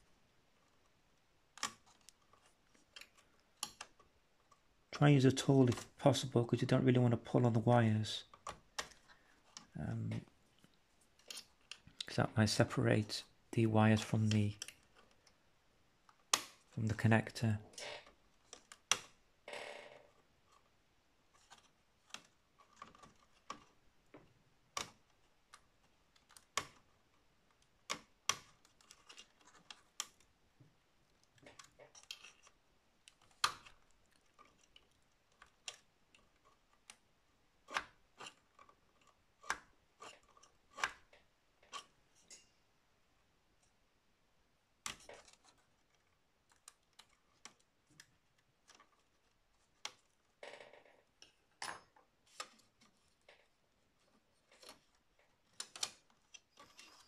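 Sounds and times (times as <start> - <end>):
metal pry tool clicking on plastic: 55.5 - 57.0.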